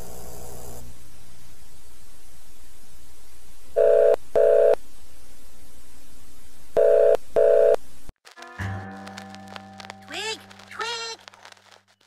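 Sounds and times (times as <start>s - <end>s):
static hiss: 8.2s - 12.0s.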